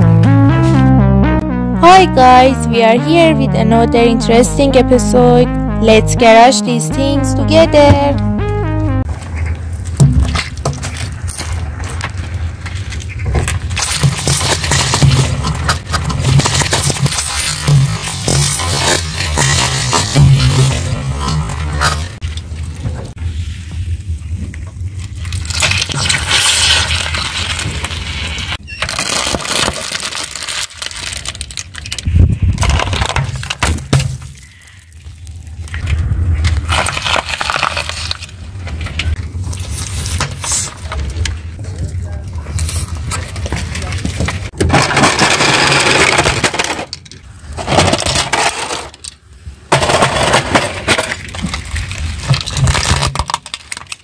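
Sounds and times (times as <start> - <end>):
tyre crushing plastic toys: 28.8 - 34.5, 36.7 - 38.3, 44.6 - 49.0, 49.7 - 54.0
tyre crushing crackling packets: 28.9 - 34.5, 36.7 - 38.3.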